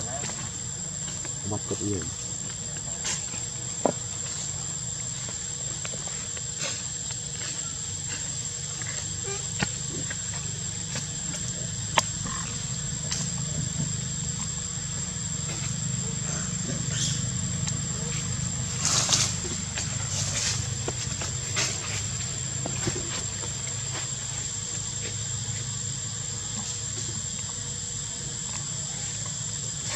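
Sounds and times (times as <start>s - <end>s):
high-pitched insect drone: 0.0s - 29.9s.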